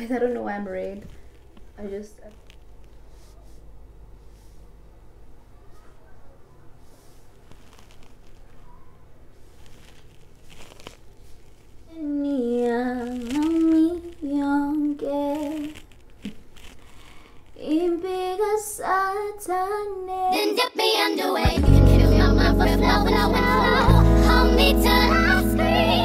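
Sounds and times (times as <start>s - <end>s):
faint handling ticks: 6.8s - 11.9s, 12.6s - 18.4s
woman singing unaccompanied: 11.9s - 15.7s, 17.6s - 26.0s
loud music with heavy bass: 21.5s - 26.0s.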